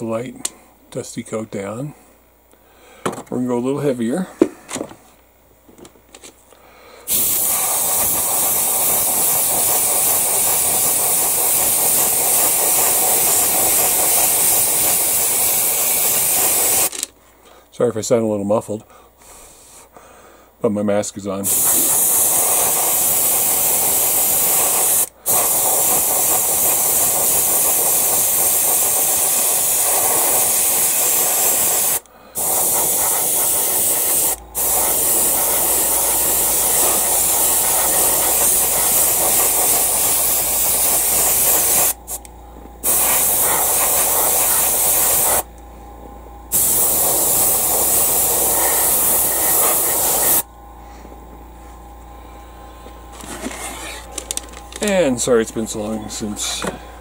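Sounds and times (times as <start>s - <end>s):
airbrush spraying hiss: 7.1s - 16.9s, 21.4s - 42.2s, 42.8s - 45.5s, 46.5s - 50.5s.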